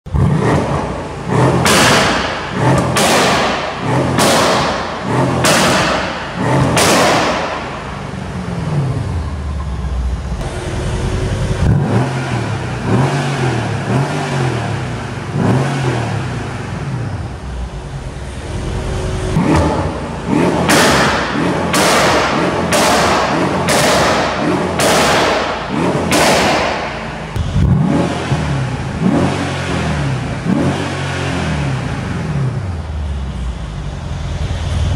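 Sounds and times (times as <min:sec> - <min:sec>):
car exhaust revving: 0:00.1 - 0:34.9.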